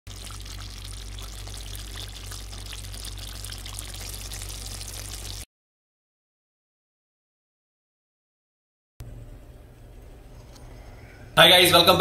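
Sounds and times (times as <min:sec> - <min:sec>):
sauce bubbling in a pan: 0:00.1 - 0:05.5.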